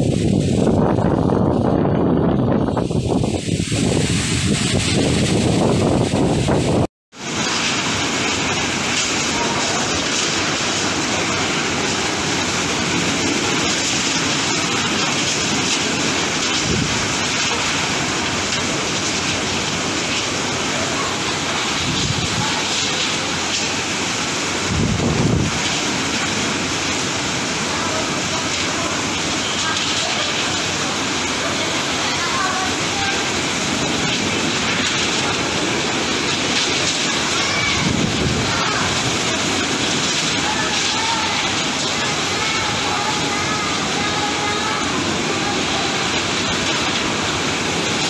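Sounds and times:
heavy rain: 0.0s - 48.0s
strong wind: 0.0s - 48.0s.

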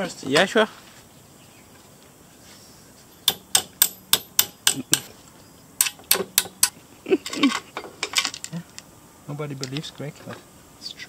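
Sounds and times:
sharp metal clicks of hand tools: 3.2s - 5.1s, 5.8s - 6.8s.

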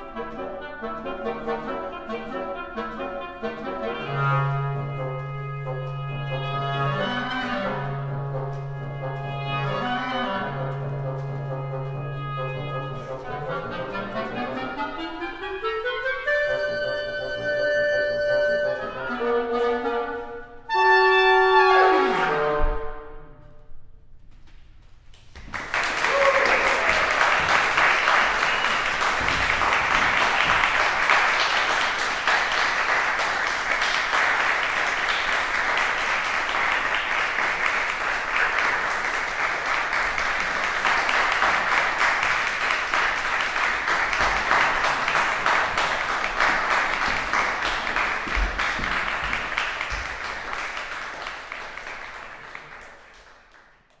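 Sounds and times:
audience applauding: 25.3s - 54.0s.

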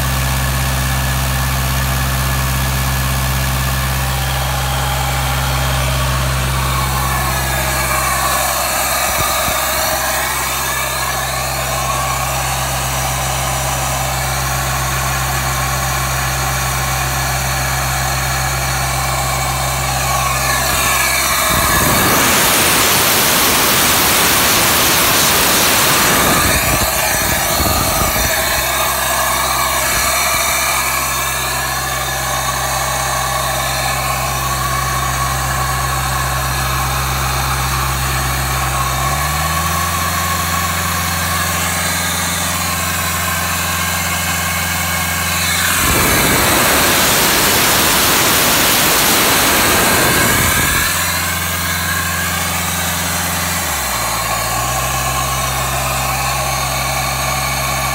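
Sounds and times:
machine engine running: 0.0s - 57.9s
loud rushing noise: 4.0s - 15.0s, 18.0s - 35.4s, 41.2s - 54.4s.

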